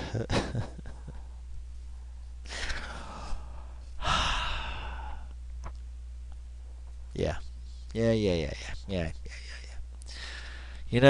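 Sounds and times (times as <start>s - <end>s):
steady low hum: 0.0s - 11.0s
man sighing: 2.5s - 5.3s.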